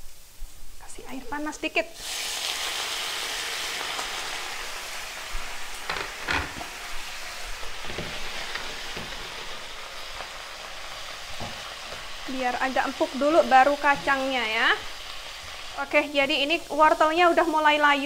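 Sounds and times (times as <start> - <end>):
water sizzling in hot pan: 0.9 - 18.0
spatula scraping and knocking pan: 7.6 - 9.7.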